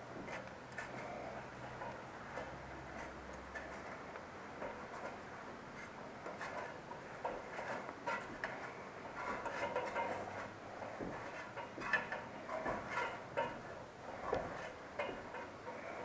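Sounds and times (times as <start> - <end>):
clicks on aluminium ladder: 4.6 - 5.2, 5.8 - 16.0.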